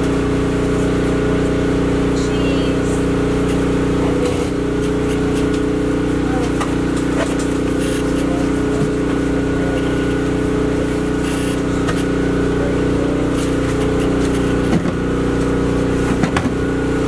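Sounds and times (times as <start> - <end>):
engine humming steadily: 0.0 - 17.0.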